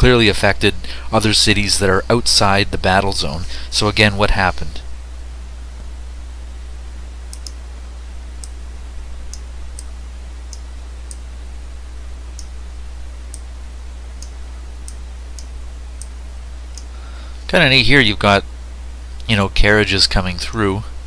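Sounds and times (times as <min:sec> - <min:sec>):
steady low hum: 0:00.0 - 0:21.0
computer mouse clicking: 0:07.3 - 0:07.6.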